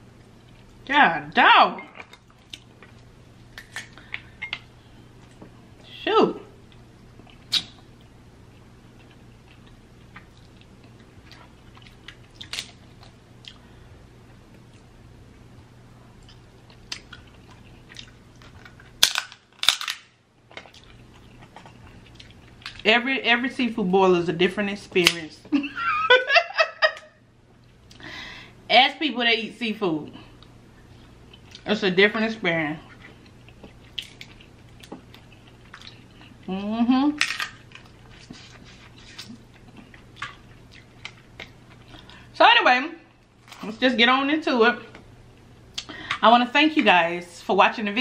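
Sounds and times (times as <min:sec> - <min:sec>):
crab shell cracking: 0:18.4 - 0:20.7.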